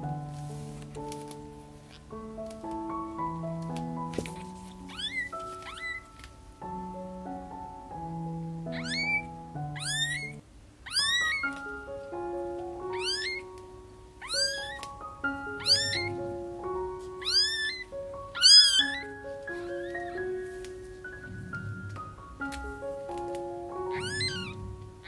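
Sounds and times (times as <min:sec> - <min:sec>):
soft piano music: 0:00.0 - 0:25.0
kitten mewing: 0:04.3 - 0:06.1, 0:08.7 - 0:11.6, 0:12.9 - 0:13.4, 0:14.2 - 0:14.8, 0:15.5 - 0:16.2, 0:17.2 - 0:20.2, 0:23.9 - 0:24.7.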